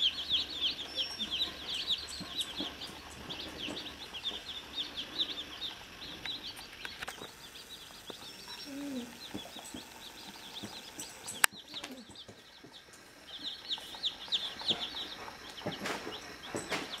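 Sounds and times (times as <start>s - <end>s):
chicks peeping: 0.0s - 17.0s.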